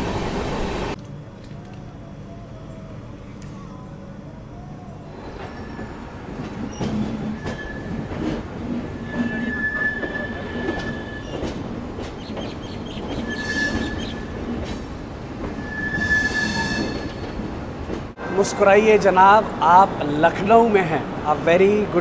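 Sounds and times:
high wheel squeal: 5.0s - 11.6s, 12.2s - 14.4s, 15.5s - 17.5s
train wheels rumbling on rails: 5.0s - 18.3s.

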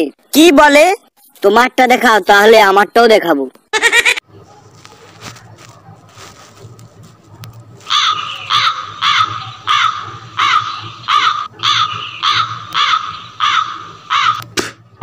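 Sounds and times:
bird cawing: 7.8s - 14.6s.

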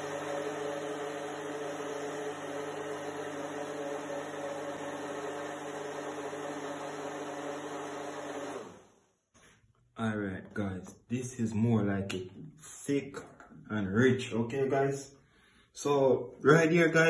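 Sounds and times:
blender motor running: 0.0s - 9.0s.

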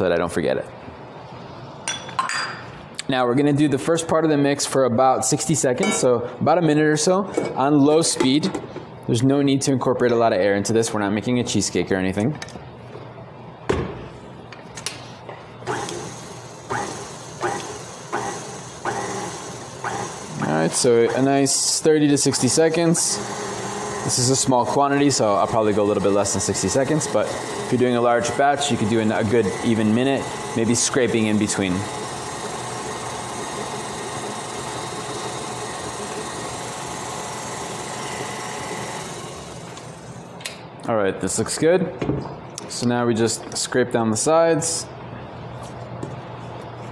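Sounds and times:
mixer motor whining: 15.6s - 21.6s, 22.6s - 40.3s.

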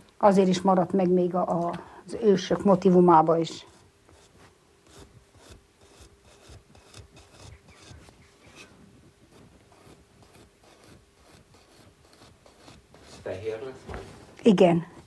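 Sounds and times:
brush scratching on clay pot: 2.6s - 14.1s.

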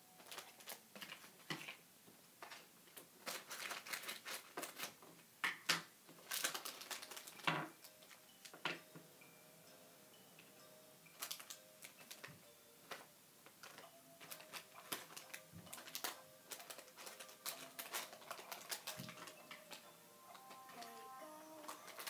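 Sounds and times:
faint steady hum: 4.5s - 22.0s.

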